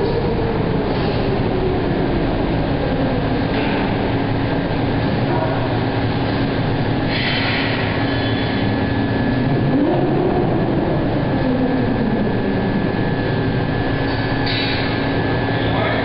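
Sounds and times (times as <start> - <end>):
industrial machinery drone: 0.0 - 16.0
machine whine rising and falling: 5.8 - 16.0.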